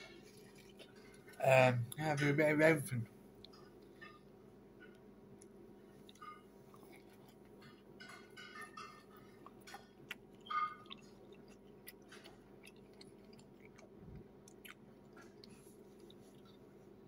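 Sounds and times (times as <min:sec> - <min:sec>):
person chewing food: 0:00.0 - 0:01.4, 0:03.3 - 0:17.0
faint steady hum: 0:00.0 - 0:17.0.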